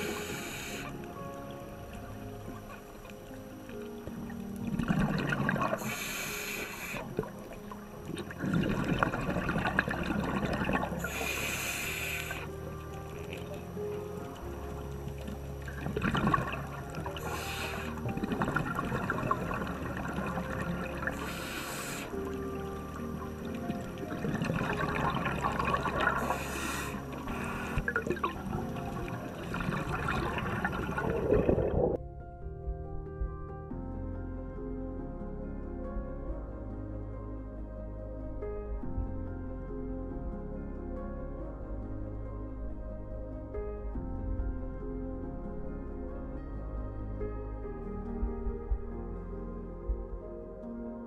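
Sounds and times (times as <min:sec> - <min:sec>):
hissing regulator inhale: 0:00.0 - 0:01.0, 0:05.8 - 0:07.3, 0:11.0 - 0:12.5, 0:17.2 - 0:18.1, 0:21.1 - 0:22.2, 0:26.1 - 0:27.9
low rush of water: 0:00.0 - 0:32.0
faint crackles: 0:00.0 - 0:33.8
exhaled bubbles underwater: 0:04.6 - 0:06.1, 0:06.8 - 0:32.0.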